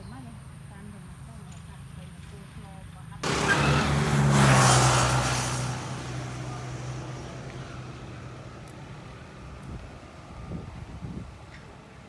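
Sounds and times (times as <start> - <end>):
vehicle engine humming: 3.2 - 12.0.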